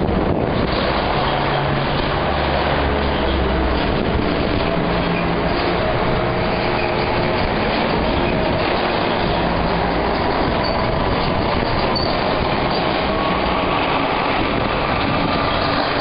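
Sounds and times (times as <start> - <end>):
forklift engines rumbling: 0.0 - 16.0
brief high squeal: 12.0 - 12.2.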